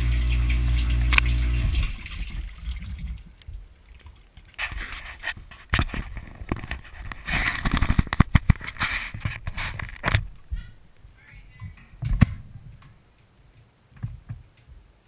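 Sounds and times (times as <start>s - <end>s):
dishwasher pump humming: 0.0s - 2.6s
water spraying and splashing: 0.0s - 6.1s
trickling water: 0.0s - 11.1s
clunks and rattles of racks: 11.7s - 13.0s.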